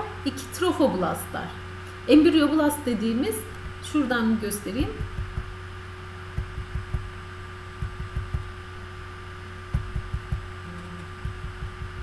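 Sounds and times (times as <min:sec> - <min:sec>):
steady electrical hum: 0:00.0 - 0:12.0
soft low thumps: 0:03.5 - 0:08.7, 0:09.6 - 0:12.0.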